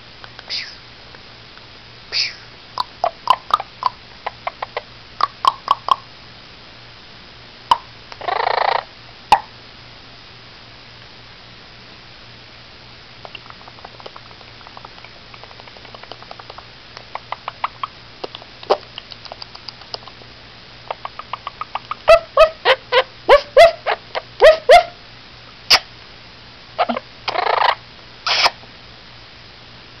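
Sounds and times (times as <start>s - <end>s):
parrot harsh squawks: 2.2s - 3.6s, 8.2s - 8.9s, 21.7s - 25.0s, 26.8s - 28.6s
parrot soft rapid clicking: 13.2s - 20.2s
parrot dog-like barks: 21.7s - 25.0s, 26.8s - 28.5s.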